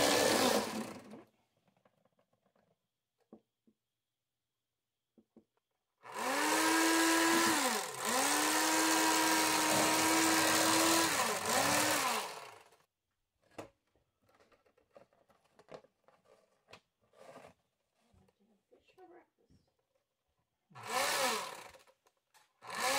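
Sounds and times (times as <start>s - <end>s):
electric knife humming: 0.0s - 1.1s, 6.1s - 12.8s.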